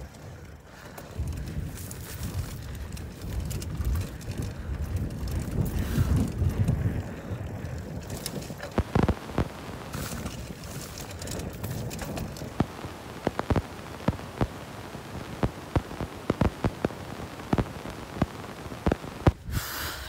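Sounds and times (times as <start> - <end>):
tyre and wind rush: 0.0 - 20.0
bike frame rattling and knocking: 0.7 - 8.8, 9.9 - 12.5.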